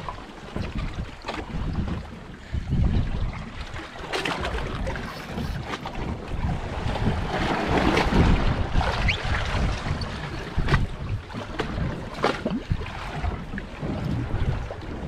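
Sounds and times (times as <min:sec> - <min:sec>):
water slapping against hull: 0:00.0 - 0:15.0
wind buffeting microphone: 0:00.0 - 0:15.0
knocks and splashes: 0:03.6 - 0:15.0.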